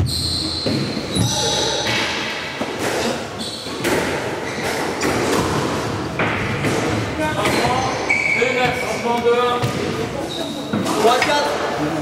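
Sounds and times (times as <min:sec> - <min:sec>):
squash ball hits: 0:03.8 - 0:07.8.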